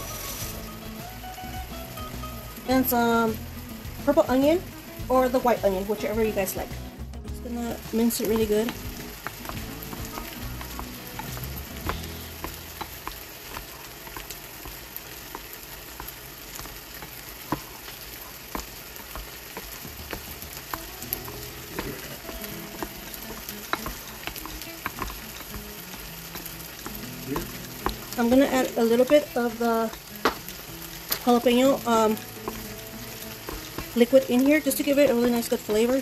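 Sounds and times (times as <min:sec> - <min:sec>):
meat sizzling in a pan: 0:00.0 - 0:36.0
sharp clicks and taps: 0:07.7 - 0:17.7, 0:18.5 - 0:36.0.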